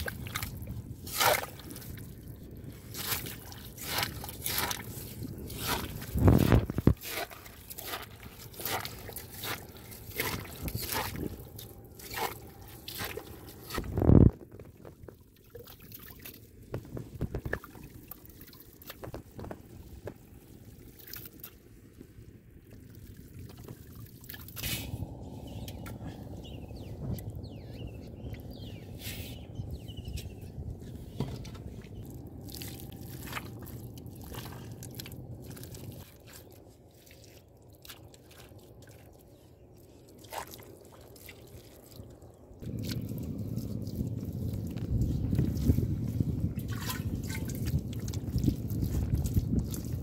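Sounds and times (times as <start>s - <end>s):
muddy water sloshing: 0.0s - 50.0s
digging tool chopping wet soil: 1.0s - 1.7s, 2.9s - 11.3s.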